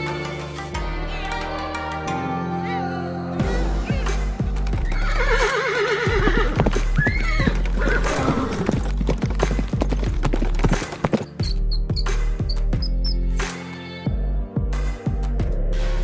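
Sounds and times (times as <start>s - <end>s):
background music: 0.0s - 16.0s
horse whinnying: 4.8s - 8.9s
hoof clip-clops: 4.9s - 11.6s.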